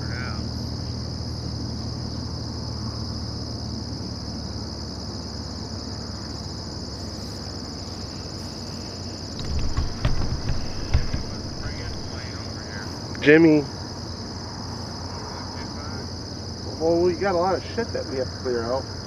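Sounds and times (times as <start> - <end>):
distant light aircraft engine idling: 0.0 - 19.0
high insect chorus: 0.0 - 19.0
thumps on microphone: 9.4 - 12.6.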